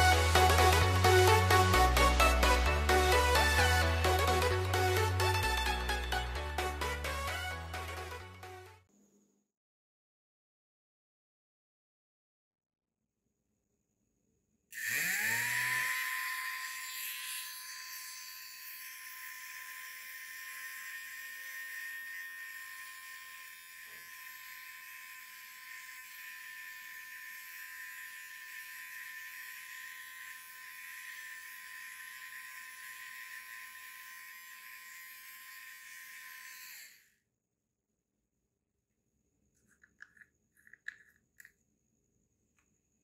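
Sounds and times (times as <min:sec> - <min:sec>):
small motor whining: 0:14.8 - 0:37.2.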